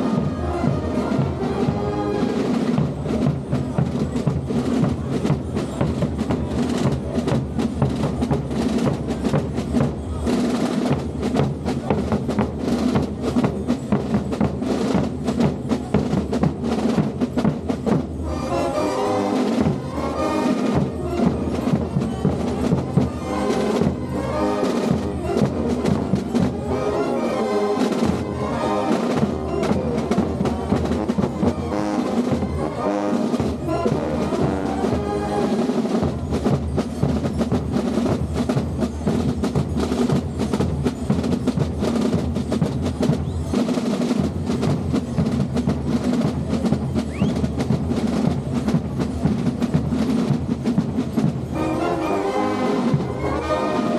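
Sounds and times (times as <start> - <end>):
brass playing a tune: 0.0 - 2.8, 18.2 - 21.8, 22.4 - 35.8, 51.5 - 53.9
drums beating march rhythm: 0.0 - 53.9.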